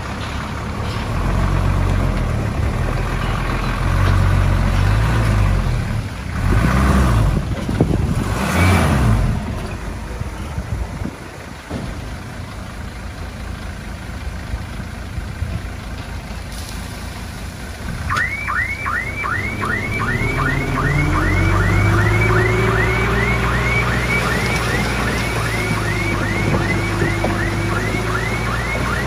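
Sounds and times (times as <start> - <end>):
diesel machinery running: 0.0 - 29.0
reversing alarm chirping: 18.1 - 29.0.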